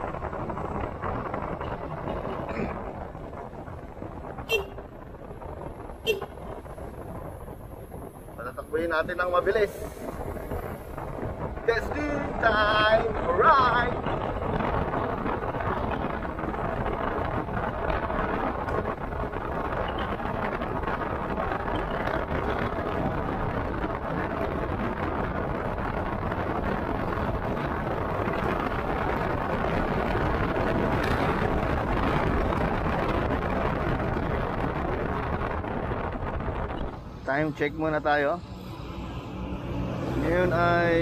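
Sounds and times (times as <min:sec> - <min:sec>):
wind and motorcycle riding noise: 0:00.0 - 0:41.0.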